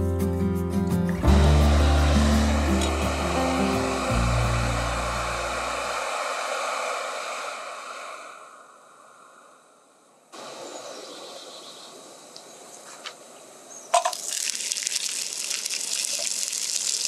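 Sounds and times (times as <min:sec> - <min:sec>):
background music: 0:00.0 - 0:06.2
camp stove gas burner hissing: 0:01.2 - 0:09.6
hiss: 0:01.2 - 0:11.1.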